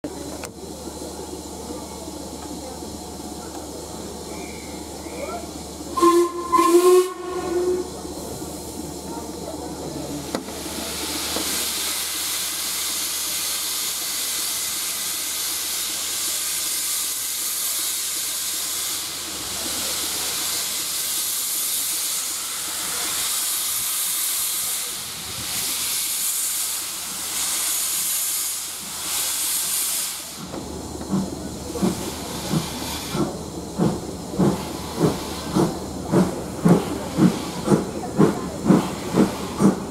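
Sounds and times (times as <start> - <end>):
steam hissing: 0.1 - 39.9
steam locomotive whistle: 5.9 - 8.0.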